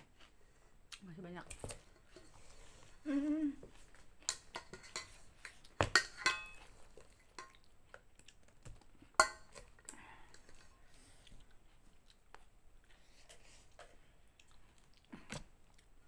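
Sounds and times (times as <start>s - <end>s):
metal pot clanking: 5.8s - 6.6s, 9.2s - 9.5s.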